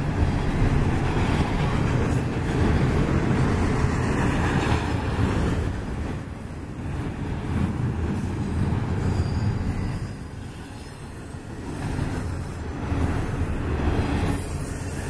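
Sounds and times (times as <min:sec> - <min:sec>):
train wheels rumbling on rail: 0:00.0 - 0:15.0
high wheel squeal: 0:09.0 - 0:13.6.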